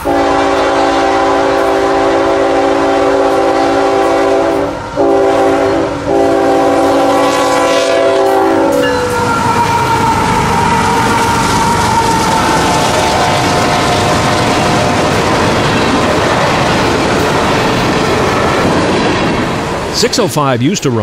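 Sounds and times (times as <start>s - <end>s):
train air horn blasts: 0.0s - 15.2s
diesel locomotives passing: 0.0s - 21.0s.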